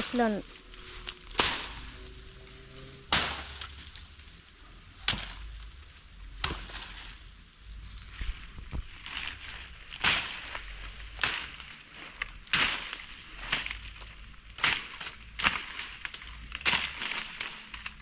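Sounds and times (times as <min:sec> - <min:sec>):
leaves and stems rustling: 0:00.0 - 0:18.0.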